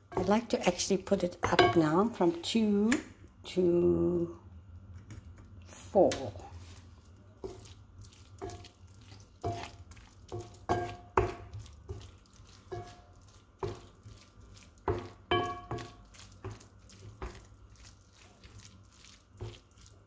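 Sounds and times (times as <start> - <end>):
wooden spoon knocking and scraping pan: 0.0 - 2.4, 6.2 - 18.6, 19.2 - 20.0.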